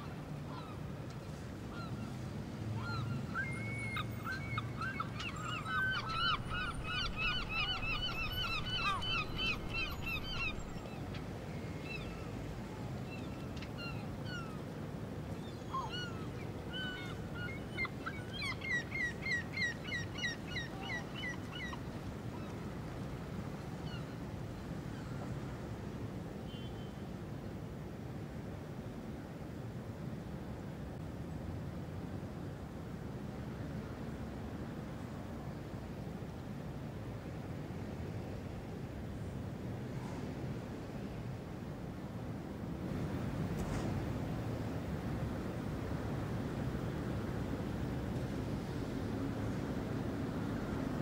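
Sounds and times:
birds calling: 2.8s - 11.0s
low background rumble: 6.0s - 11.0s.

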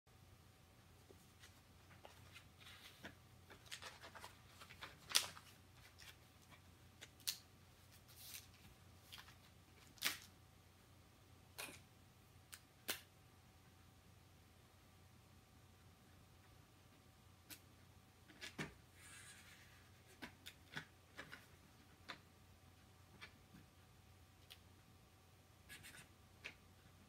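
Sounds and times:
paper rustling: 1.1s - 6.6s, 7.3s - 10.3s.

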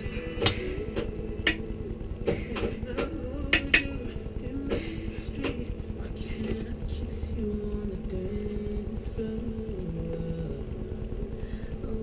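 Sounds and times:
sharp cracks on metal tube: 0.4s - 4.0s.

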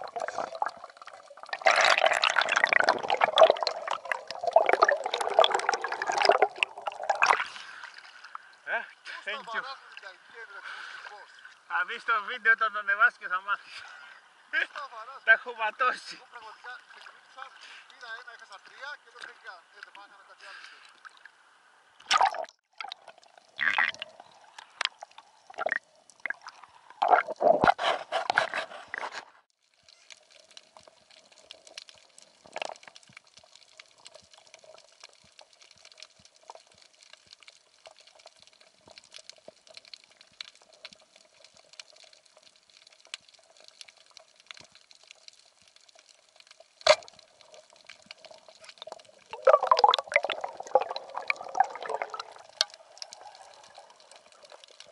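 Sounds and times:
water splashing and bubbling: 0.0s - 9.1s, 20.8s - 54.9s
faint underwater hum: 13.6s - 54.9s
small clicks and crackles: 16.6s - 21.3s, 23.0s - 26.6s, 28.2s - 49.4s, 51.0s - 54.9s.

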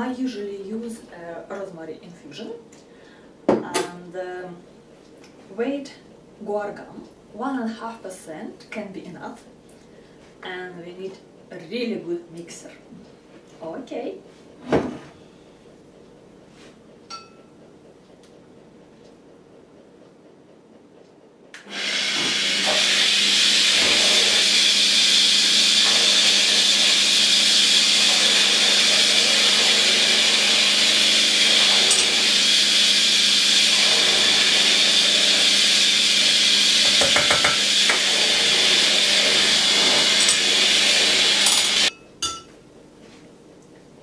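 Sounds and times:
rotary tool whining: 21.6s - 41.9s.

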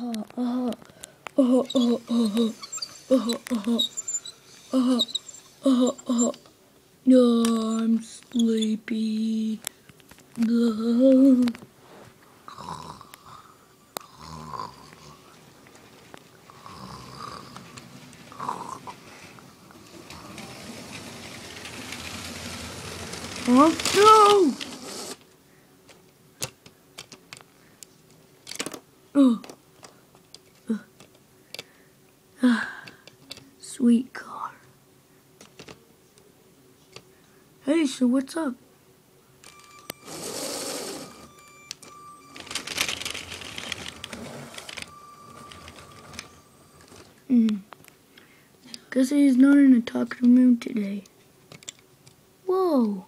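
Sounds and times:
toy train whirring on plastic track: 1.5s - 6.4s, 17.3s - 25.2s, 39.4s - 47.1s
faint thin whine: 14.6s - 25.7s, 39.1s - 51.8s
scattered clicks: 41.6s - 47.0s.

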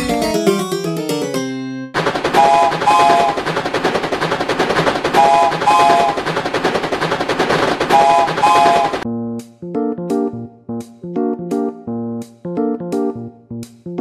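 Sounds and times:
steam train clatter: 2.0s - 9.0s
train whistle toots: 2.4s - 3.4s, 5.2s - 6.2s, 7.9s - 9.0s.

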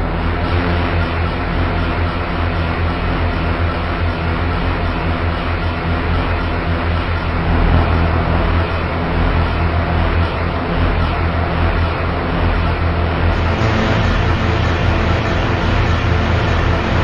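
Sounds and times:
deep low drone: 0.0s - 17.0s
dense wash of noise: 7.0s - 17.0s.

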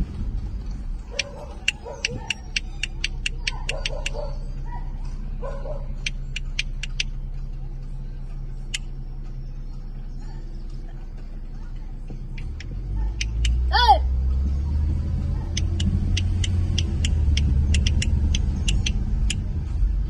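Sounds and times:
horse hooves on asphalt: 0.0s - 4.3s, 14.4s - 20.0s.

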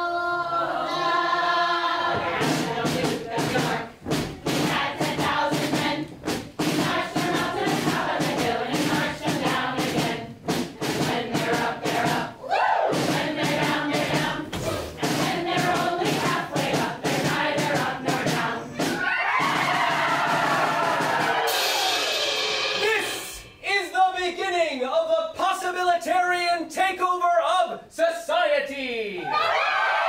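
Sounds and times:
choir singing in chorus: 0.0s - 22.9s
heavy drum thumps: 2.0s - 23.6s.

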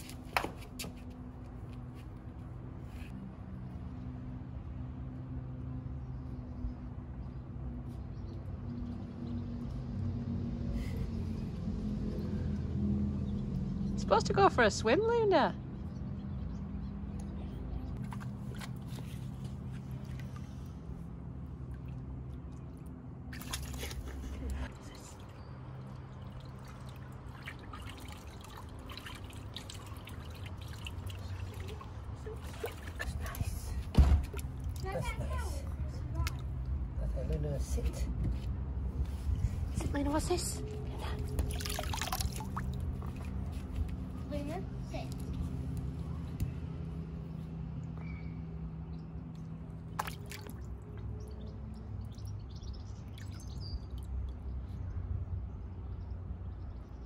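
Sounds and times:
water splashing and dripping: 18.0s - 36.8s, 41.0s - 45.8s, 49.3s - 54.8s.

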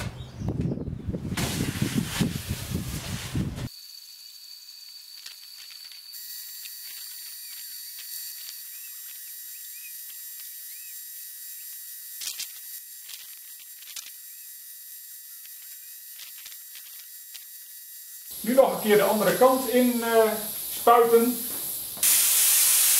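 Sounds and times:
spray gun hissing: 18.3s - 22.9s.

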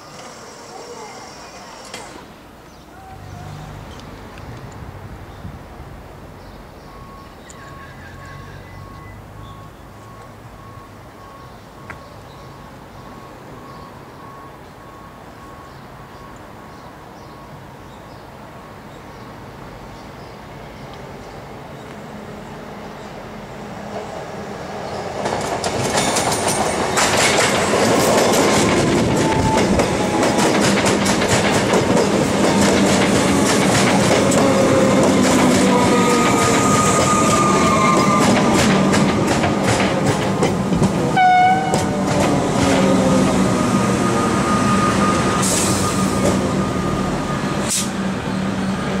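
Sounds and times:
train whining tones: 0.0s - 4.0s, 25.2s - 49.0s
electric train passing: 0.0s - 49.0s
wheels clicking over rail joints: 25.2s - 43.1s
pitched squeal: 34.2s - 38.8s, 42.8s - 48.4s.

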